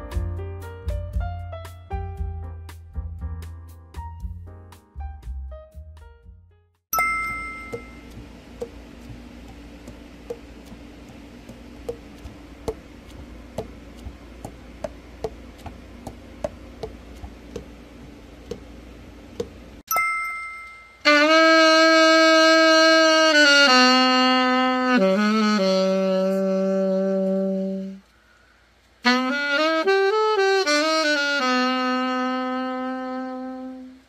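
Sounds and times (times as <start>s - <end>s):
chime ringing: 6.9s - 8.2s, 19.9s - 21.1s
low steady hum: 7.0s - 29.0s
saxophone long held note: 21.0s - 28.0s, 29.0s - 34.0s.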